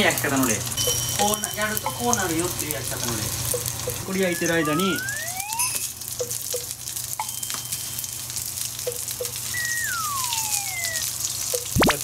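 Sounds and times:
fish sizzling in a frying pan: 0.0 - 12.0
downward sliding whistle tone: 4.2 - 5.9, 9.5 - 11.2.

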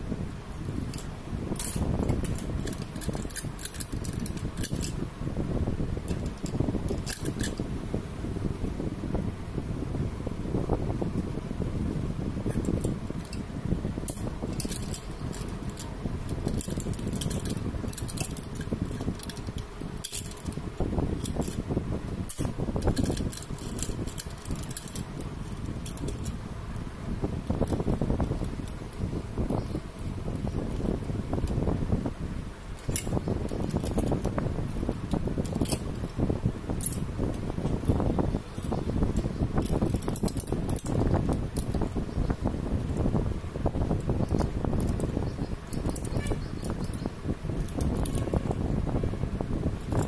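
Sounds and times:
low background rumble: 0.0 - 50.0
metal parts clicking: 0.6 - 5.0, 6.0 - 7.6, 12.4 - 13.4, 14.0 - 21.7, 22.3 - 26.4, 32.7 - 42.0, 44.0 - 48.7.

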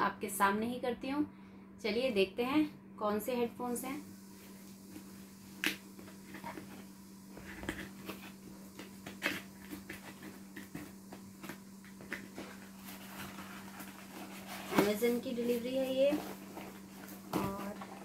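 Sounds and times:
faint steady hum: 0.0 - 18.0
cardboard flap scraping: 5.6 - 18.0.

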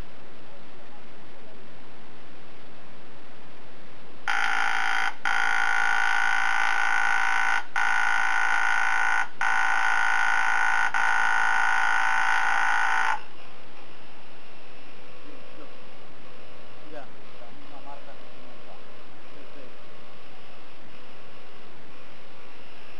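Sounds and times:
air-powered marking tool buzzing: 4.3 - 13.3.

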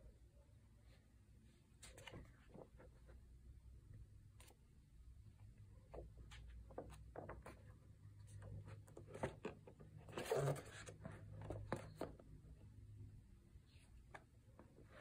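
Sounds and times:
paper pages rustling: 1.8 - 3.1.

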